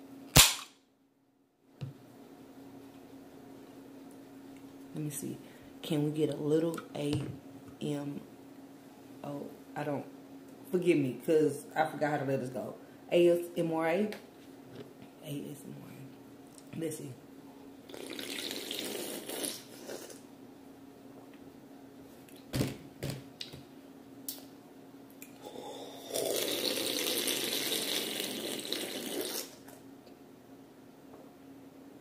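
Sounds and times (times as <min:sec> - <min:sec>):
slurping and gulping: 0:17.8 - 0:20.3, 0:25.3 - 0:29.8
sipping from a can: 0:17.9 - 0:20.2, 0:26.1 - 0:29.8.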